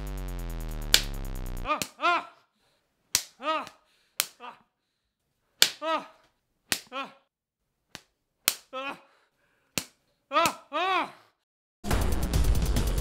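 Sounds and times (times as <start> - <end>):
short cry: 1.7 - 2.5, 3.4 - 4.7, 5.8 - 6.2, 10.3 - 11.3
spatula slapping skin: 3.1 - 4.4, 5.6 - 5.8, 6.7 - 6.9, 7.9 - 8.7.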